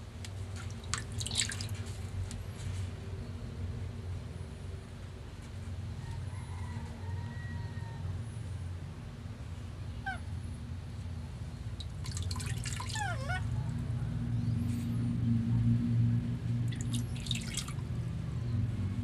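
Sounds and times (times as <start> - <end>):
baby monkey squealing: 12.6 - 13.5.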